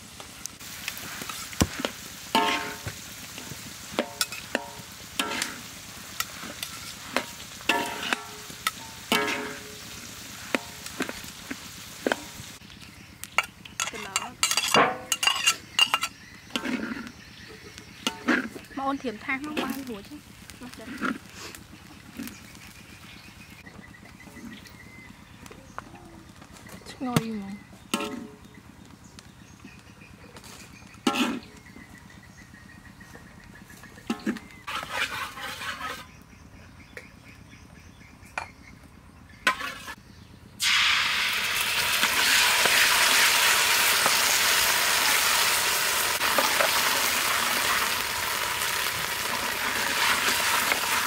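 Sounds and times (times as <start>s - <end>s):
light sizzle: 0.0s - 23.6s, 40.6s - 51.0s
metal spatula scraping wok: 1.0s - 11.3s, 13.4s - 17.2s, 18.0s - 18.7s, 19.4s - 20.0s, 20.8s - 21.6s, 31.0s - 31.5s, 34.1s - 36.2s, 39.4s - 40.0s
metal clinking against pan: 13.4s - 16.2s.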